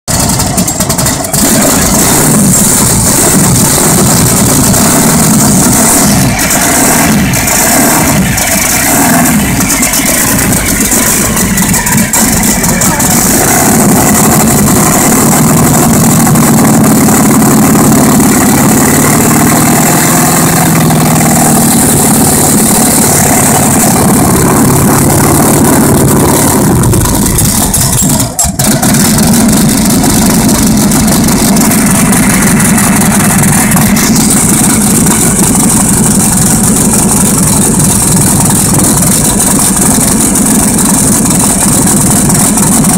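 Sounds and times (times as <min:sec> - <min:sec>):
car engine idling loudly: 0:00.0 - 0:42.9.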